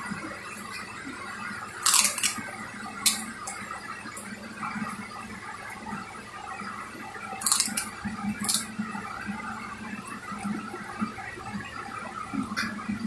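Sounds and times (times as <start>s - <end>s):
plastic bag crinkling: 1.8s - 3.6s.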